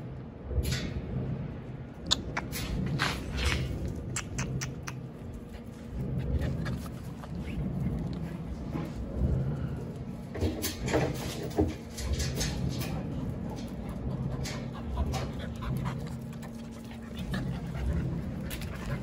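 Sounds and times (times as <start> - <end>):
dogs panting: 2.2 - 10.3, 12.6 - 19.0.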